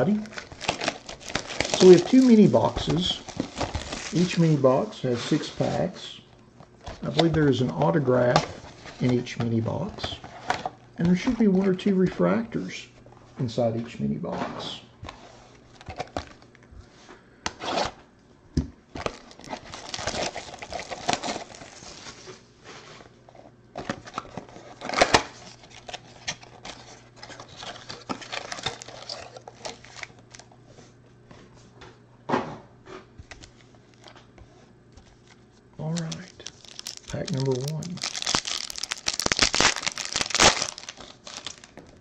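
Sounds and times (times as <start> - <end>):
foil packs rustling: 0.0 - 6.0, 19.0 - 22.4, 23.8 - 30.5, 35.0 - 42.0
cardboard box tearing open: 36.6 - 41.7.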